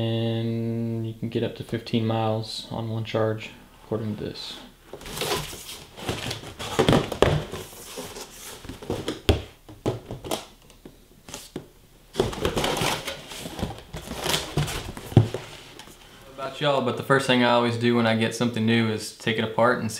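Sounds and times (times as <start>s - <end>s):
cardboard box scraping and rustling: 5.0s - 9.0s, 12.2s - 15.8s.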